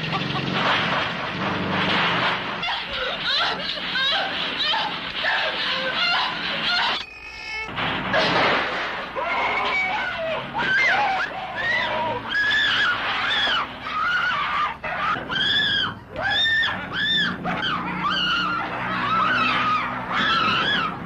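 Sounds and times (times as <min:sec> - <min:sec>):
woman screaming: 0:02.6 - 0:07.0, 0:09.2 - 0:21.0.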